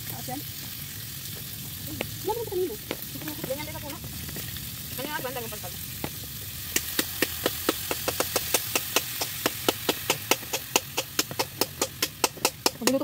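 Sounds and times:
meat sizzling in a frying pan: 0:00.0 - 0:13.0
fast sharp knocks: 0:06.8 - 0:13.0.

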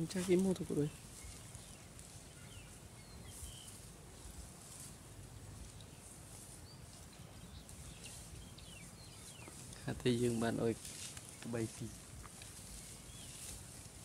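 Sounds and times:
faint bird chirps: 0:00.3 - 0:03.9, 0:05.5 - 0:10.6.

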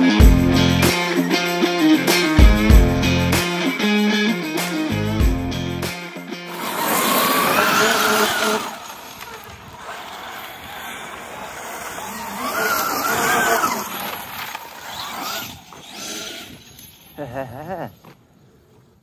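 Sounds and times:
electric motor whining: 0:06.5 - 0:17.1
tyres on gravel: 0:06.5 - 0:18.8.

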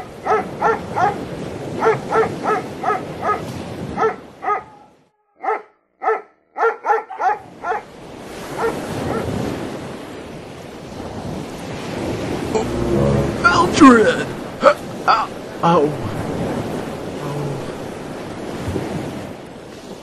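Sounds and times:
dog barking: 0:00.2 - 0:01.2, 0:01.8 - 0:07.9, 0:08.5 - 0:09.3.

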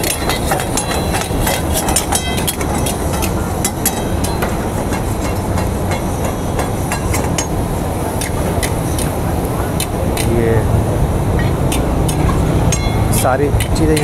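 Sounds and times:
metal ladles scraping pans: 0:00.0 - 0:10.5, 0:11.3 - 0:14.0
gas burner flame roaring: 0:00.0 - 0:14.0.

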